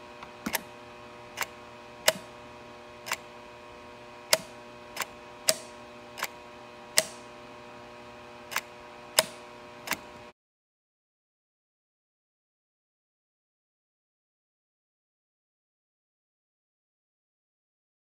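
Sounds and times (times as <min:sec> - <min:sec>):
steady electrical hum: 0:00.0 - 0:10.3
sharp clicks: 0:01.4 - 0:02.3, 0:03.0 - 0:03.2, 0:04.3 - 0:06.4, 0:07.0 - 0:07.2, 0:08.5 - 0:10.1.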